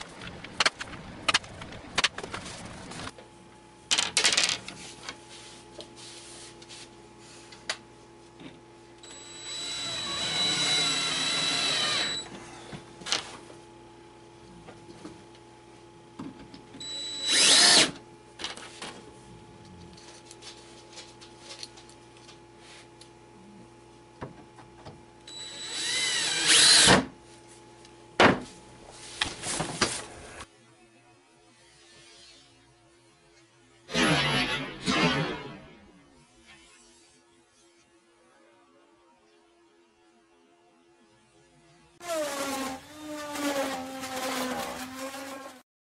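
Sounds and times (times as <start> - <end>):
power drill whining: 9.0 - 12.7, 16.8 - 18.0, 25.3 - 27.0.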